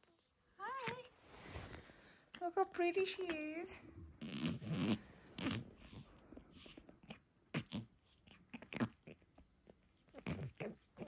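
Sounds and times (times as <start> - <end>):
cat licking fur: 4.2 - 11.0.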